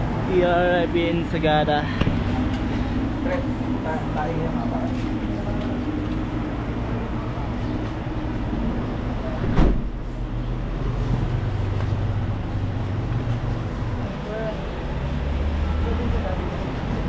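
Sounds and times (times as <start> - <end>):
street noise: 0.0 - 17.0
vehicle engine idling: 0.0 - 17.0.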